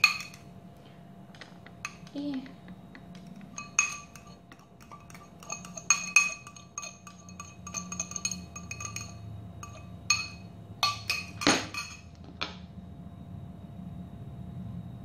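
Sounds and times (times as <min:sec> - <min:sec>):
fork clinking against glass bowl: 0:00.0 - 0:00.5, 0:01.8 - 0:02.2, 0:03.1 - 0:12.1.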